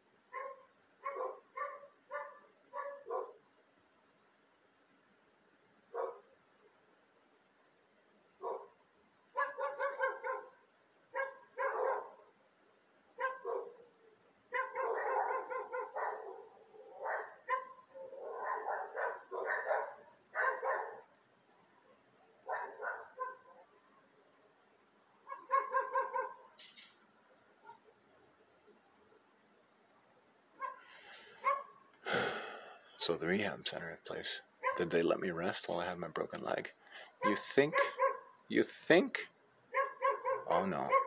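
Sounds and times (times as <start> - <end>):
dog barking: 0.3 - 3.4, 5.9 - 6.3, 8.4 - 12.2, 13.2 - 13.9, 14.5 - 21.1, 22.4 - 23.7, 25.2 - 26.5, 30.6 - 31.8, 34.6 - 34.9, 37.2 - 38.4, 39.7 - 41.0.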